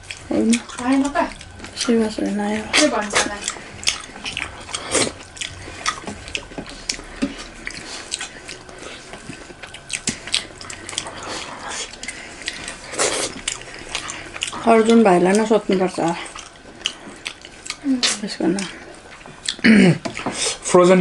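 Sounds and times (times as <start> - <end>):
wet chewing: 0.0 - 21.0
lip smacks: 2.8 - 14.7.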